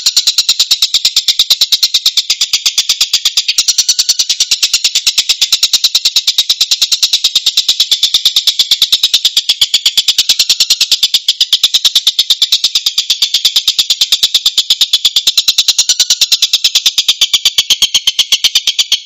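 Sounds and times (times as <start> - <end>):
bird calling in rapid harsh notes: 0.0 - 2.0.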